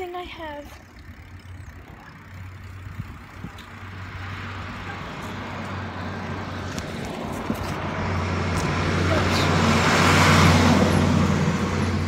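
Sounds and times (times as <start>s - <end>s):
bicycle riding rumble and hiss: 0.0s - 12.0s.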